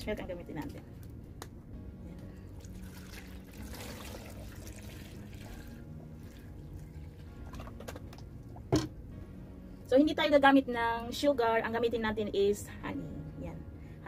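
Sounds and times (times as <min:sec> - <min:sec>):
milk pouring into blender jar: 0:02.6 - 0:07.9.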